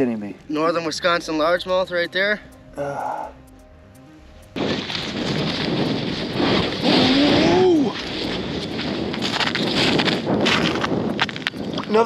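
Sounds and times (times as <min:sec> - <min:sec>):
wind buffeting microphone: 0:04.4 - 0:12.0.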